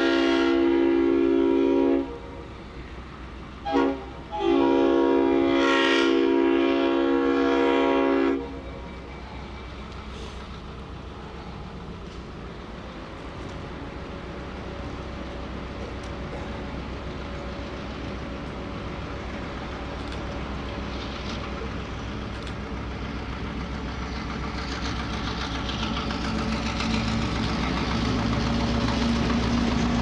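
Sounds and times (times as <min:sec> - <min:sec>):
diesel locomotive engine rumble: 0:00.0 - 0:30.0
train wheels on rails: 0:00.0 - 0:30.0
steady engine hum: 0:07.0 - 0:30.0.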